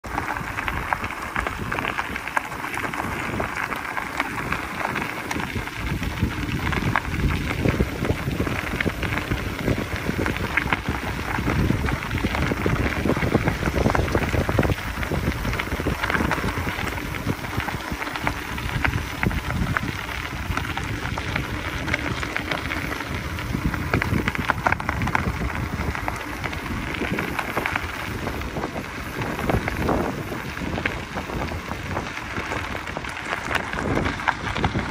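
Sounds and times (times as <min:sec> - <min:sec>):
bike tyres crackling on gravel: 0:00.0 - 0:34.9
wind noise on microphone: 0:00.0 - 0:34.9.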